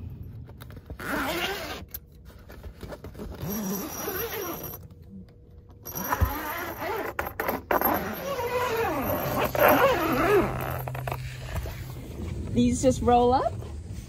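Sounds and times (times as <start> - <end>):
tent zipper unzipping: 1.0 - 1.9, 3.1 - 4.8, 5.9 - 11.8.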